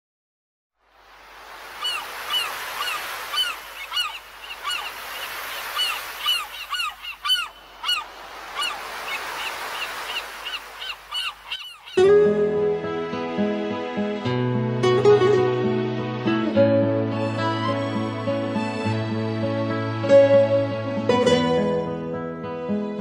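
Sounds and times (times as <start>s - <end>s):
flock of birds calling: 1.8s - 12.1s.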